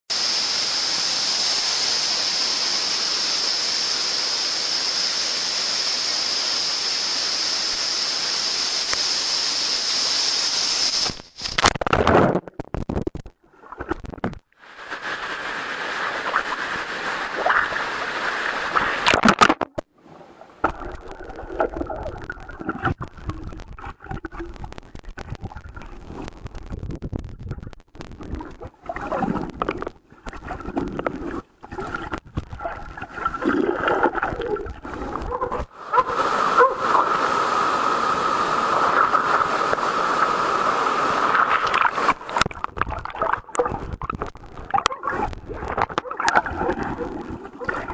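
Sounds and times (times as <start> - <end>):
waterfall rushing: 0.1 - 11.3, 34.9 - 42.4
underwater gurgling and sloshing: 11.8 - 47.9.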